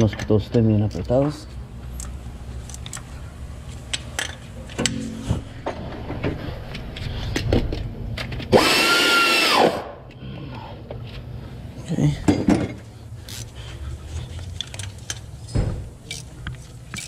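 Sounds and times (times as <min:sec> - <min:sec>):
tools clicking and knocking: 0:03.9 - 0:05.0, 0:16.0 - 0:17.0.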